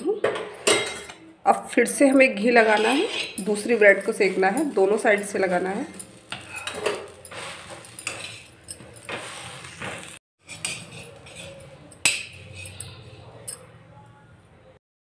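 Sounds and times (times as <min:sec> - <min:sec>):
steel spatula scraping iron griddle: 0:02.3 - 0:13.6.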